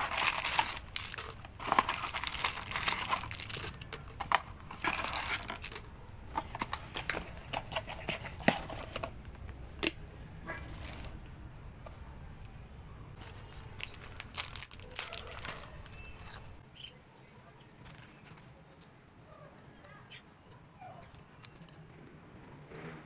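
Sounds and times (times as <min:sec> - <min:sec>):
snack wrapper crinkling: 0:00.0 - 0:05.9, 0:13.2 - 0:16.5.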